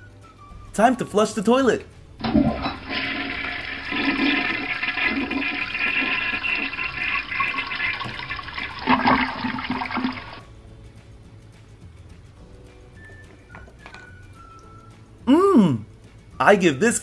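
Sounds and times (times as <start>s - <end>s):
toilet flush through small speaker: 2.2s - 10.4s.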